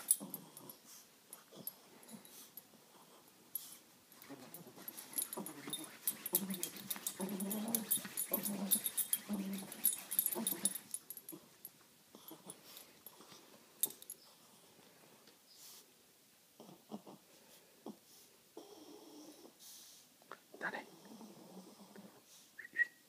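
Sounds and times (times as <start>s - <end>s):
dog grunting and snuffling: 4.2s - 11.5s.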